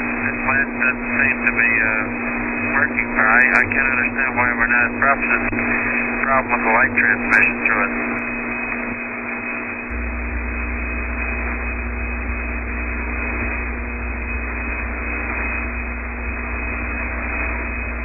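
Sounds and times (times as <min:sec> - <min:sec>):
deeper low hum: 0:00.0 - 0:18.0
radio static hiss and hum: 0:00.0 - 0:18.0.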